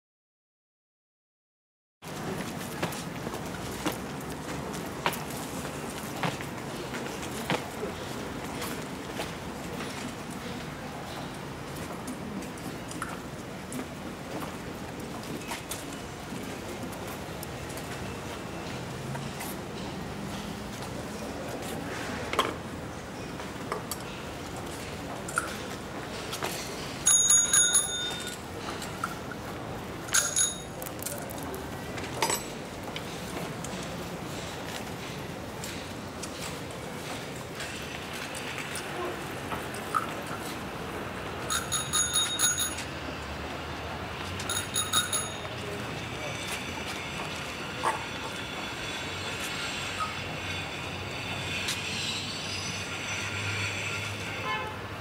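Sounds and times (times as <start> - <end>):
street rumbling hiss: 2.0 - 27.1, 28.4 - 41.6, 42.8 - 55.0
bicycle bell ringing: 27.0 - 28.4, 30.1 - 31.0, 41.5 - 42.9, 44.5 - 45.7.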